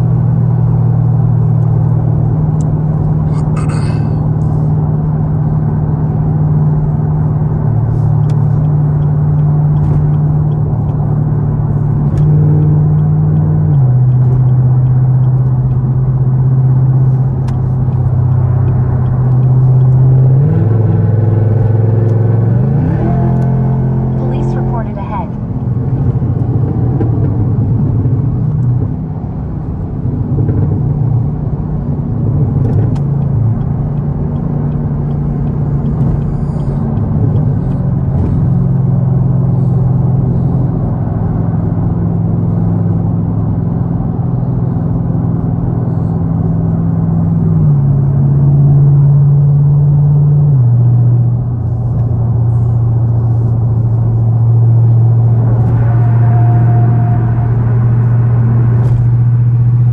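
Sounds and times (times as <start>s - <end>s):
car engine and road noise: 0.0s - 59.9s.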